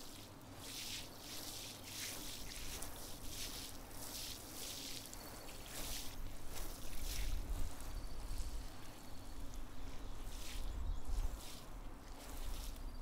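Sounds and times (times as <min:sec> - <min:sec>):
hose spraying water on soil: 0:00.0 - 0:09.6, 0:10.2 - 0:13.0
wind rumbling on microphone: 0:05.6 - 0:13.0.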